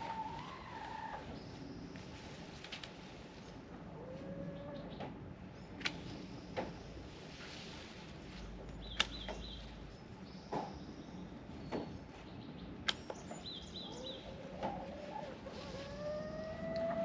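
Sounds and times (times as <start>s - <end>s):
pruners snipping stems: 5.8s - 6.8s, 8.6s - 9.7s, 12.8s - 13.4s
small bird chirping: 8.3s - 14.9s
long rising animal call: 15.6s - 17.0s.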